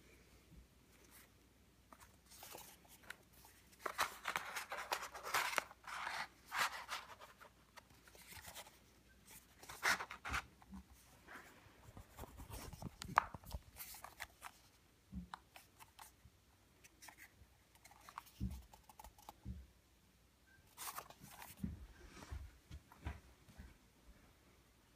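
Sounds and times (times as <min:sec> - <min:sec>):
paper rustling and crinkling: 0:01.9 - 0:11.1.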